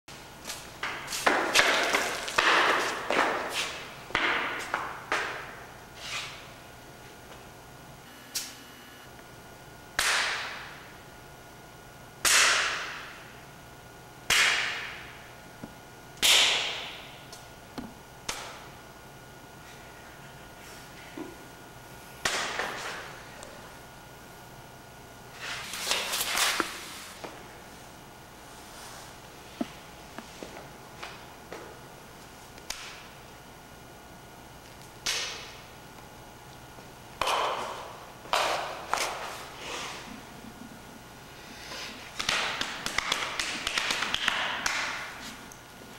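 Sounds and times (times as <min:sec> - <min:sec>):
hand slaps of body percussion: 0:10.0 - 0:10.7, 0:12.2 - 0:13.1, 0:14.3 - 0:15.0, 0:16.2 - 0:17.4, 0:18.2 - 0:18.6, 0:22.2 - 0:23.0, 0:32.6 - 0:33.1, 0:35.0 - 0:35.6, 0:42.2 - 0:45.2.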